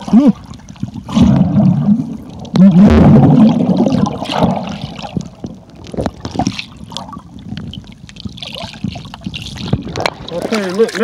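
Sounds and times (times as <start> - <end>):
muffled underwater sound: 0.0 - 8.4.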